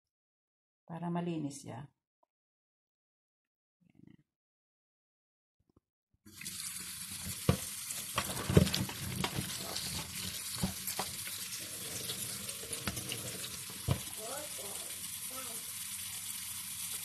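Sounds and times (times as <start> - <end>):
tap water running into colander: 6.3 - 17.0.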